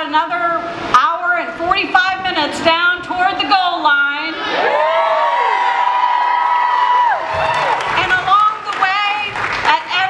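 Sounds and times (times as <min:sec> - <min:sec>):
voices whooping: 0:04.4 - 0:08.0
crowd cheering: 0:04.4 - 0:09.8.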